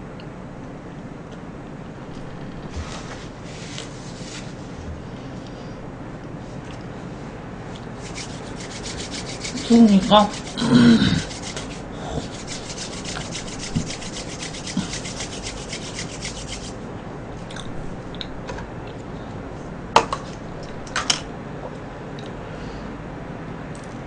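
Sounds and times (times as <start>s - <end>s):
steady low hum: 0.0s - 24.0s
palms rubbing together: 8.0s - 16.8s.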